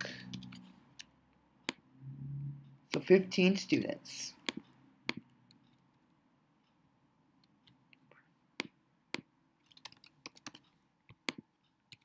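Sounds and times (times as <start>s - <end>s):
keyboard and mouse clicks: 0.0s - 1.8s, 2.9s - 5.9s, 8.6s - 12.0s.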